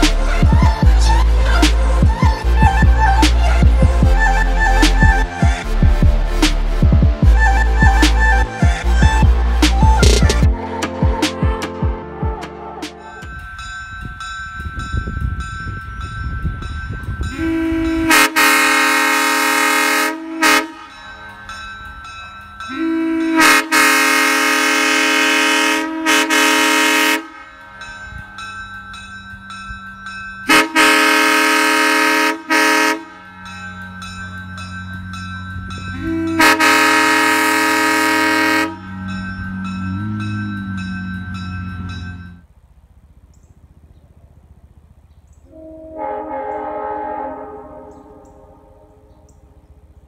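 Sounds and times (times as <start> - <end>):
train horn chord blasts: 17.2 - 21.4, 22.6 - 28.3, 30.4 - 34.7, 35.7 - 42.4, 45.5 - 49.7.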